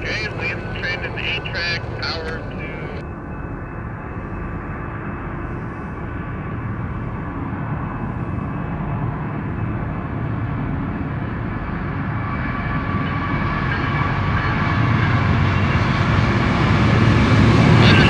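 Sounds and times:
diesel locomotives rumbling: 0:00.0 - 0:18.0.

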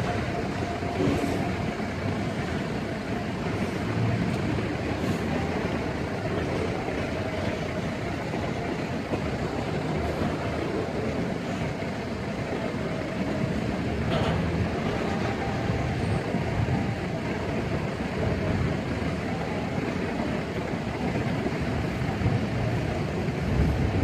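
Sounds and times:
steel wheels rumbling on rails: 0:00.0 - 0:24.0
sharp train clank: 0:14.0 - 0:16.1.

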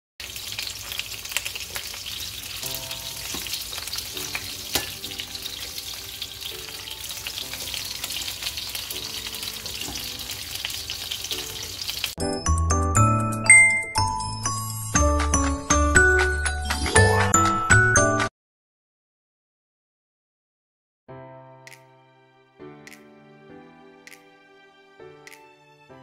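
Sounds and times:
sausages sizzling in frying pan: 0:00.2 - 0:12.3.

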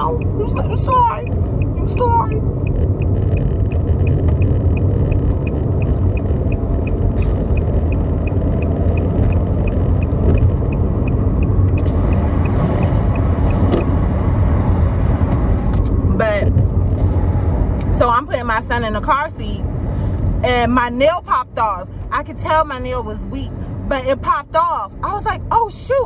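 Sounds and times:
faint regular ticking: 0:00.0 - 0:13.6
car cabin low rumble: 0:00.0 - 0:26.0.

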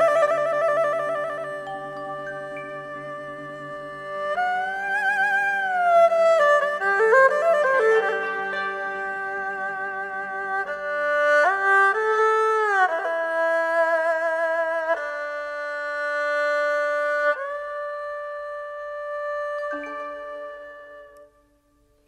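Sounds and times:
slow melody with sliding notes: 0:00.0 - 0:12.1, 0:18.9 - 0:21.6.

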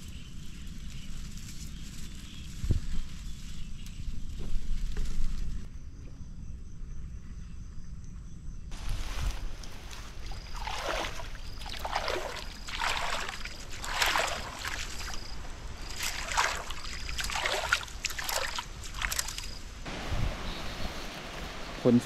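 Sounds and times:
floodwater sloshing and splashing: 0:08.8 - 0:19.6.

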